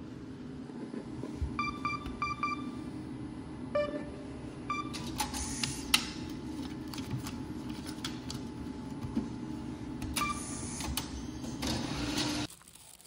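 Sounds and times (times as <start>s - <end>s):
cash machine shutter motor whirring: 10.0s - 12.5s.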